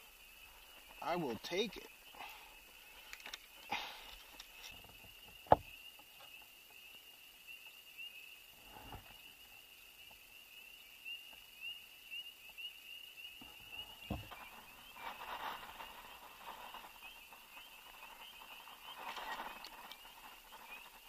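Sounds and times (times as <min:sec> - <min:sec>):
frogs peeping: 0:00.0 - 0:21.0
soft thumps: 0:14.0 - 0:15.6.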